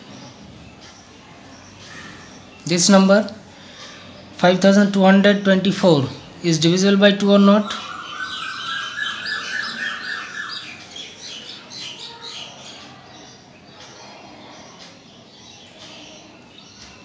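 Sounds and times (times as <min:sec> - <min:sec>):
birds chirping: 0:00.0 - 0:17.0
steady high tone: 0:07.1 - 0:11.2.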